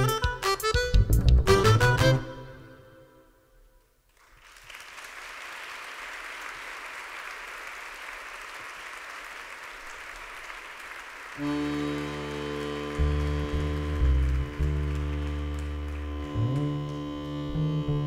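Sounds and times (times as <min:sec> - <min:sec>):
live instruments playing: 0:00.0 - 0:03.1, 0:11.4 - 0:18.0
audience applauding: 0:04.1 - 0:17.6.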